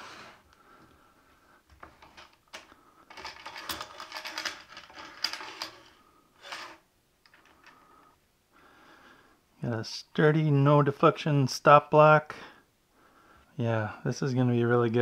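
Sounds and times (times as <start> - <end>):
small metallic clicks and rattles: 1.7 - 5.9.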